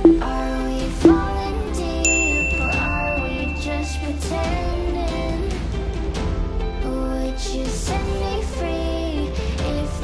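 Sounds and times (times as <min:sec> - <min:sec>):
bright electronic chime: 0:00.0 - 0:00.5, 0:01.1 - 0:01.4, 0:02.1 - 0:04.2
background pop music: 0:00.0 - 0:10.0.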